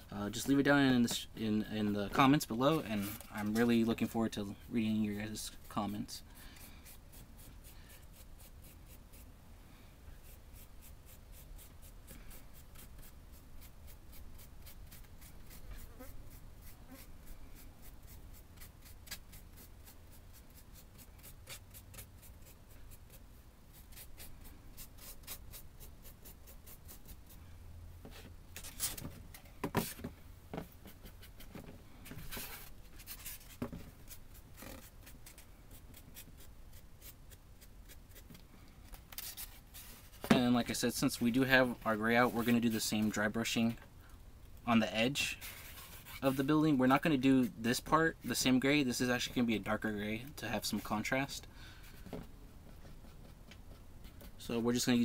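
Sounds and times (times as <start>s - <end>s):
paintbrush scratchy strokes: 1.8s - 9.3s, 10.2s - 27.4s, 39.4s - 43.2s, 45.2s - 47.8s.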